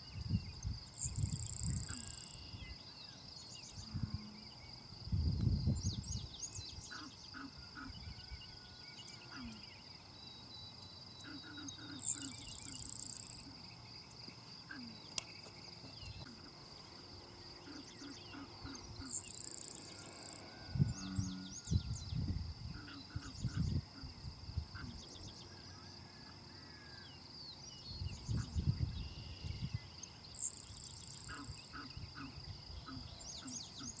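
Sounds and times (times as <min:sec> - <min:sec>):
insect drone: 0:00.0 - 0:34.0
bird chirps: 0:05.7 - 0:23.8.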